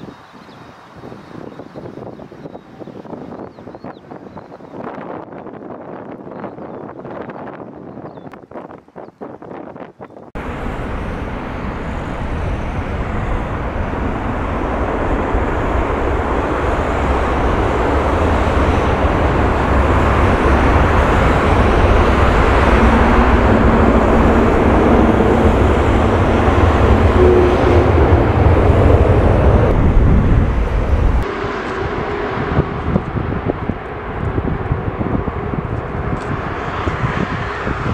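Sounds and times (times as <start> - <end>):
jet airliner landing: 10.4 - 37.9.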